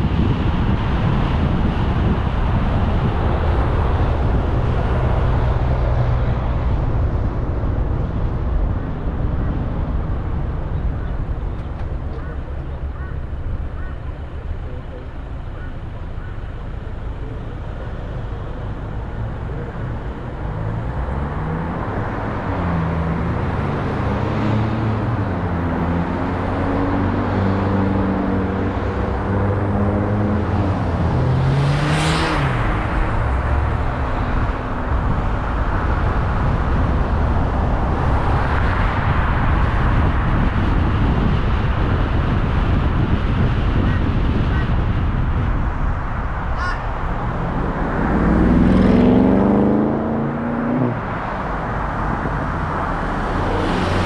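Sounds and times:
passing car rush: 0.0s - 54.0s
tyre and road noise: 0.0s - 54.0s
car engine accelerating: 45.0s - 54.0s.

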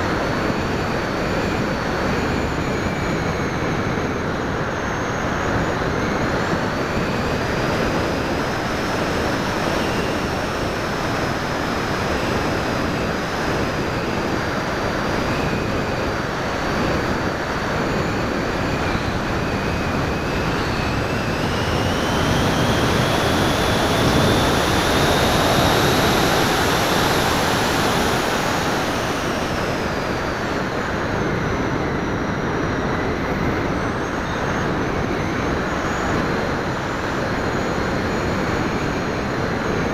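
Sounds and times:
motor and propeller whine: 0.0s - 39.9s
wind rushing over airframe: 0.0s - 39.9s.

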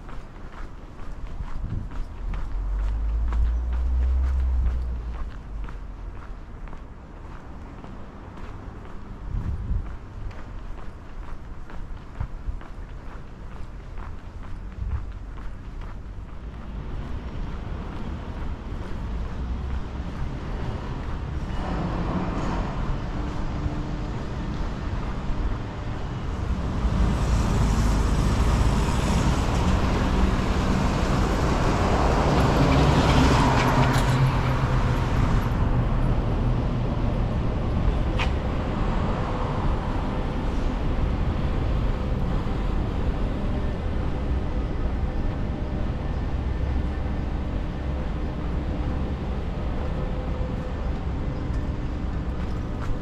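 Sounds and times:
traffic rumble: 0.0s - 53.0s
vehicle passing close by: 2.3s - 5.8s.

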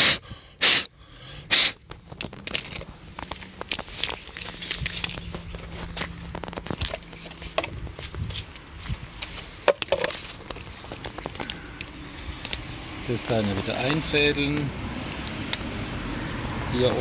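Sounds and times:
short loud puffs: 0.0s - 1.9s.

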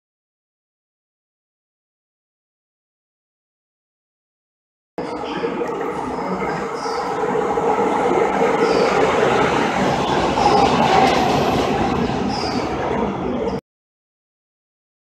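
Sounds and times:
train wheels rumbling on rails: 5.0s - 13.6s.

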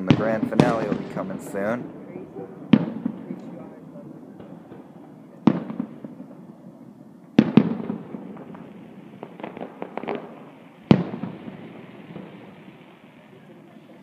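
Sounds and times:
firework booms with echo: 0.0s - 14.0s
small firework pops: 7.4s - 14.0s.

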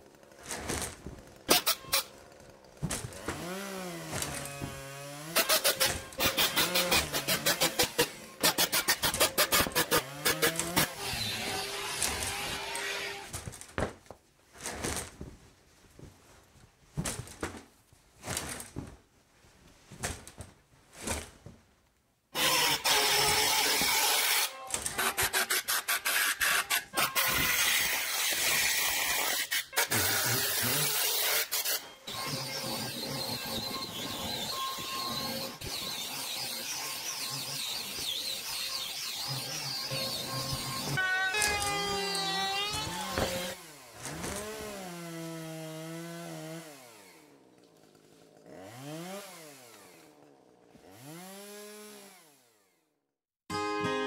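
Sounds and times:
loud steady power-tool noise: 9.7s - 13.3s, 22.4s - 24.6s, 27.1s - 47.1s
drill driving screws: 22.4s - 44.3s.

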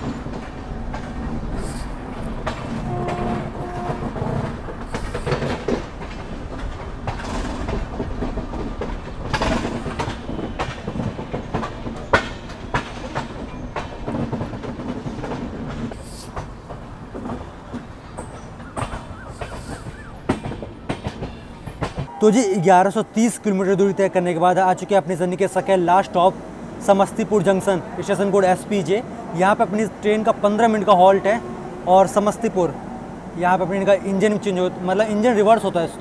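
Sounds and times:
train wheels clacking on rail joints: 0.0s - 22.2s
low train rumble: 0.0s - 36.0s.

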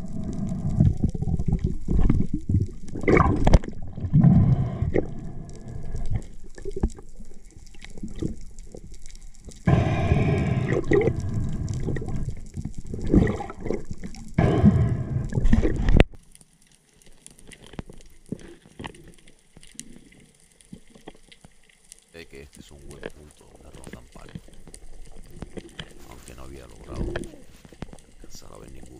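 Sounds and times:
underwater rumbling and gurgling: 0.0s - 22.1s, 22.7s - 28.9s
faint hiss: 22.2s - 28.9s.

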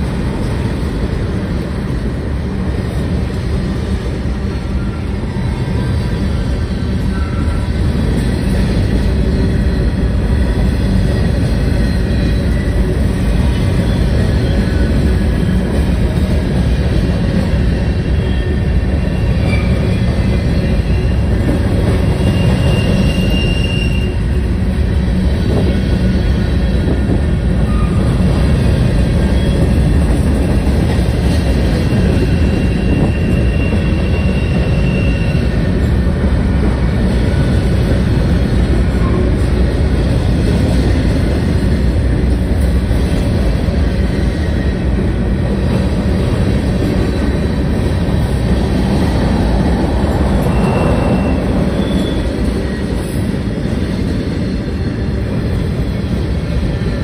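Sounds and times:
train wheels rumbling on rails: 0.0s - 57.0s
high wheel squeals: 4.4s - 15.8s, 17.7s - 24.4s, 31.8s - 36.1s, 50.0s - 53.0s.

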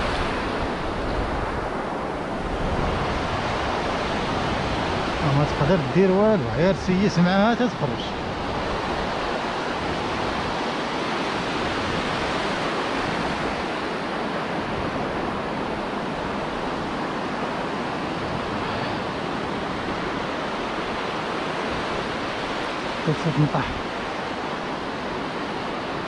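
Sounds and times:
waves breaking on a beach: 0.0s - 26.0s.

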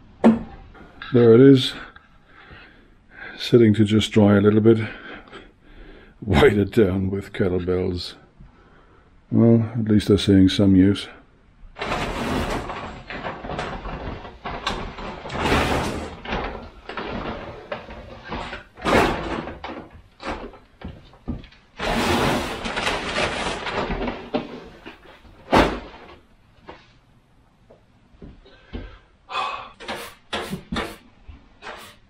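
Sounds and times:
objects scraped on workbench: 11.8s - 13.0s, 15.3s - 19.2s, 21.8s - 23.8s, 29.8s - 32.0s
knocks and clatter: 11.8s - 26.8s.

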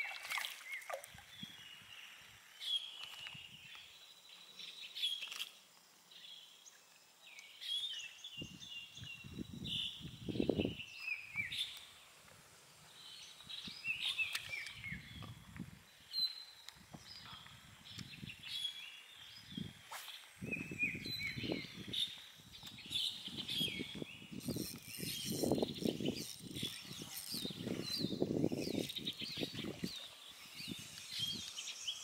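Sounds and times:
birds chirping and singing: 20.5s - 32.0s.

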